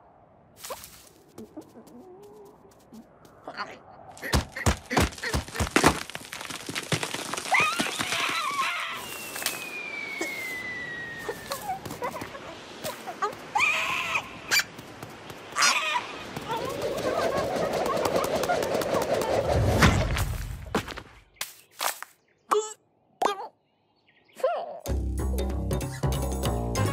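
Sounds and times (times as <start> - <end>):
steady rushing noise: 14.2 - 20.7.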